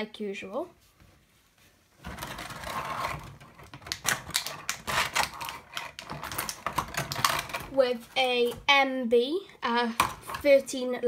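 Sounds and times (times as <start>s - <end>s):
packaging rustling: 2.0s - 8.5s
plastic toy parts clicking: 3.6s - 7.8s.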